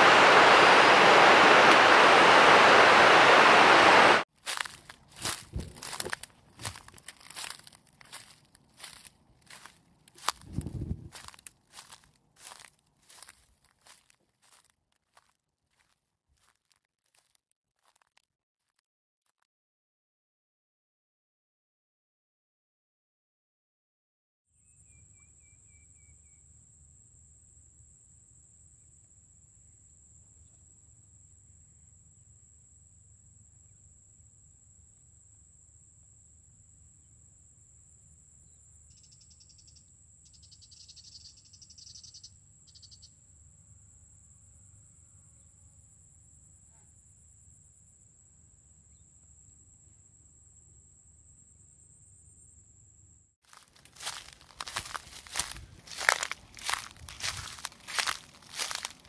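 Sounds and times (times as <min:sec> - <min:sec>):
quick insect chirps: 0:04.5 - 0:14.6, 0:38.9 - 0:43.1, 0:53.5 - 0:59.0
faint chirp: 0:24.6 - 0:26.5, 0:38.8 - 0:43.2
high-pitched insect trill: 0:24.6 - 0:43.2.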